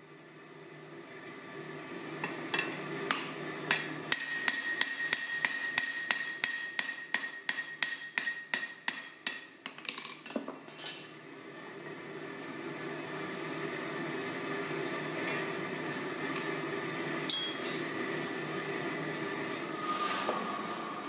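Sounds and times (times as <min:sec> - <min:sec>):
hammer striking rivet on anvil: 0:02.2 - 0:09.8
metallic ring: 0:17.3 - 0:17.8.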